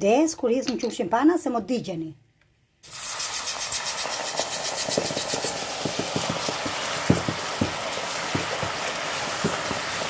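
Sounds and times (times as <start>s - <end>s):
caramel sizzling and bubbling: 2.8s - 10.0s.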